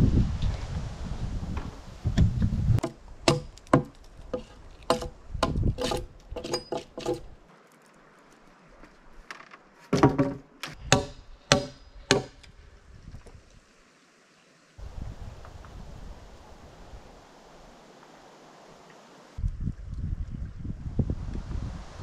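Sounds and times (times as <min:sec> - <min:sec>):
tool knocking on wooden logs: 0:02.8 - 0:07.3, 0:09.9 - 0:12.5.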